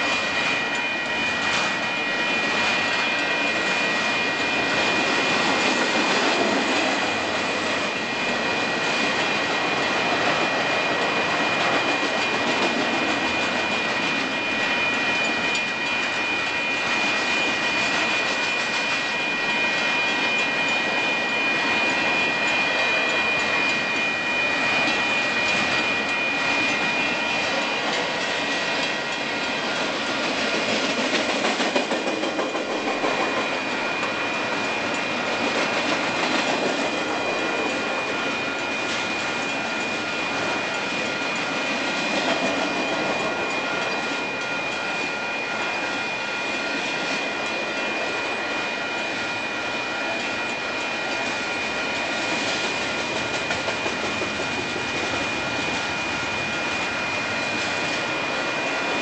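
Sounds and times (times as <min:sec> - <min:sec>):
steady high whine: 0:00.0 - 0:59.0
train wheels rumbling on rails: 0:00.0 - 0:59.0.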